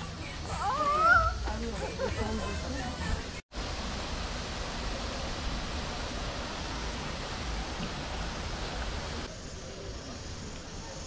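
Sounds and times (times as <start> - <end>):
rushing outdoor noise: 0.0 - 11.0.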